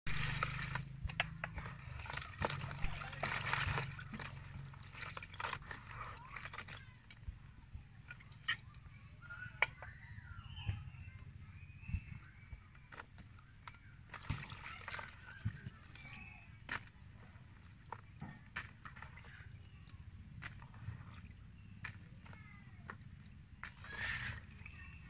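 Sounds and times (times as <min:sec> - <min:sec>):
water pouring into basin: 0:00.1 - 0:06.8, 0:13.4 - 0:16.4
hands sloshing in water: 0:01.5 - 0:06.8, 0:12.8 - 0:25.0.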